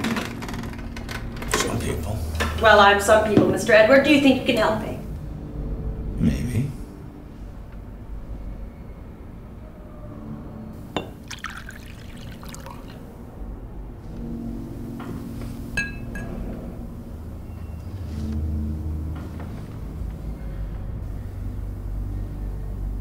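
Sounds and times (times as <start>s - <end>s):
bottle clinking on glass: 11.0s - 12.9s
liquor pouring into glass: 11.0s - 13.1s.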